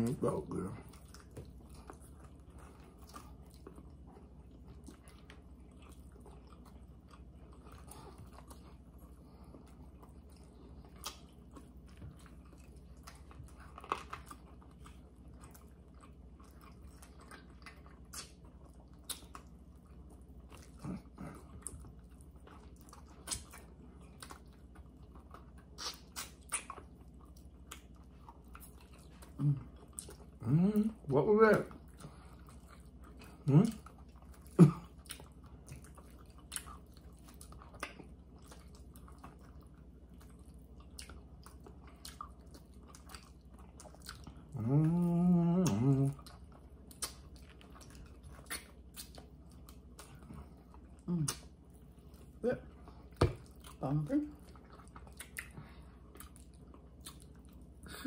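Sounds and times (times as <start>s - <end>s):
chewing and gnawing: 0.0s - 58.0s.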